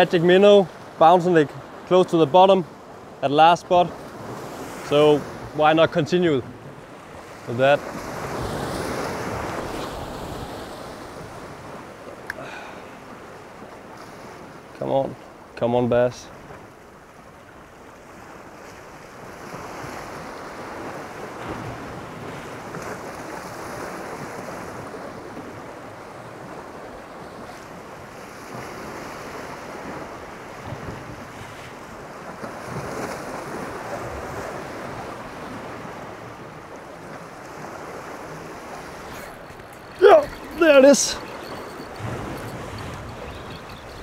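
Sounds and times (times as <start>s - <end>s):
waves washing against a jetty: 0.0s - 44.0s
wind blowing across microphone: 17.9s - 44.0s.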